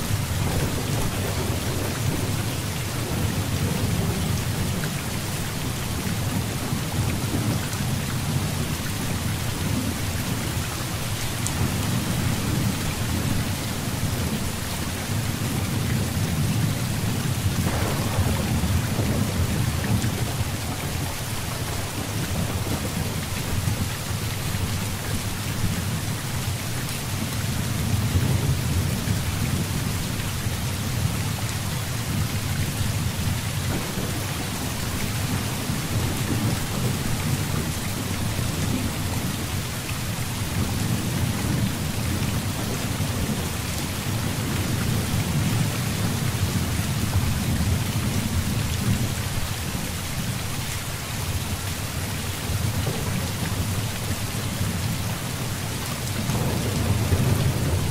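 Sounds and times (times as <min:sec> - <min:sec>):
heavy rain falling: 0:00.0 - 0:57.9
low rolling thunder: 0:00.1 - 0:26.1, 0:27.4 - 0:31.5, 0:32.1 - 0:49.9, 0:52.4 - 0:57.9.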